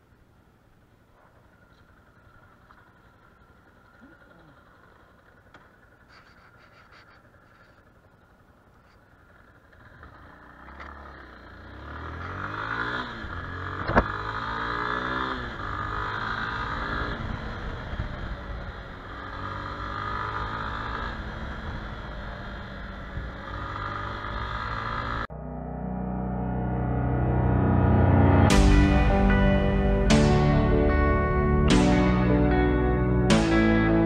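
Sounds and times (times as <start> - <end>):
motorcycle engine accelerating: 1.1 - 34.0.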